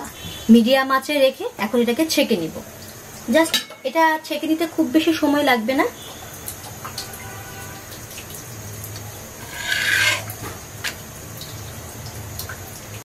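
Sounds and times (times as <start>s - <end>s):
rasping scrape: 9.4s - 10.4s.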